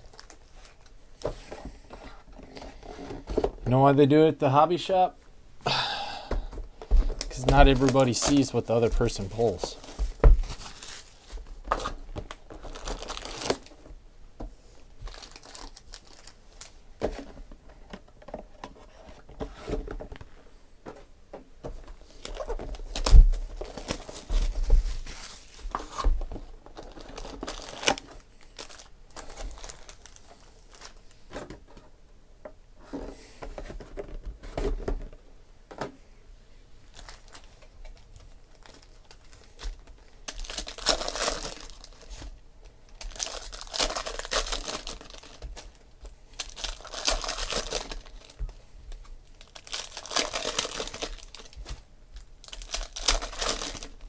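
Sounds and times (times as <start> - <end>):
foil and plastic wrap crinkling: 0.0 - 0.9, 6.9 - 13.9, 15.0 - 16.8, 22.0 - 31.2, 36.9 - 54.0.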